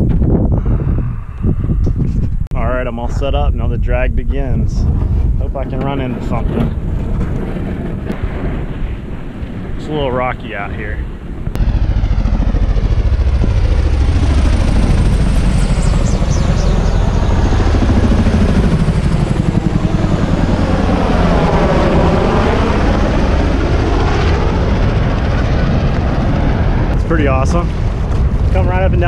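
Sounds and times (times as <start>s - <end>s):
helicopter rotors thudding: 4.8s - 29.0s.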